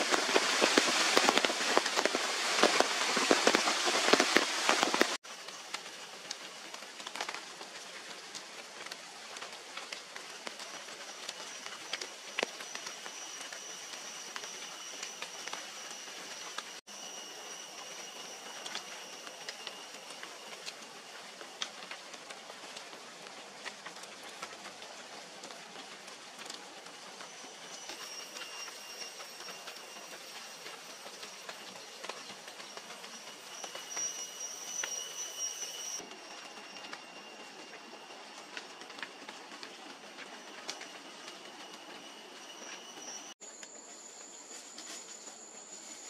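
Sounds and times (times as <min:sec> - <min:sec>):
forest ambience hiss: 0:00.0 - 0:46.0
high thin insect drone: 0:11.4 - 0:21.2, 0:27.3 - 0:38.3.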